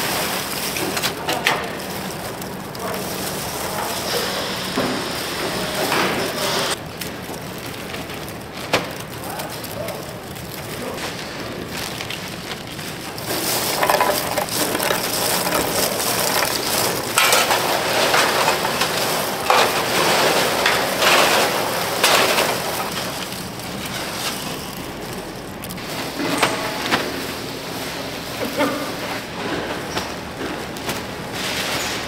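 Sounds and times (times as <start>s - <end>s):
plastic bag crinkling: 0.0s - 5.9s, 6.7s - 26.2s
snack bars rustling and clattering: 6.8s - 26.2s.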